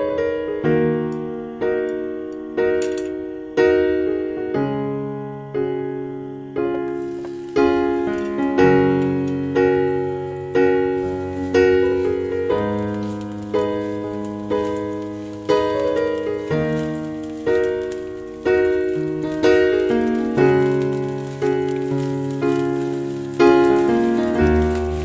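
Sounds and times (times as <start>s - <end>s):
slow piano chords: 0.0s - 25.0s.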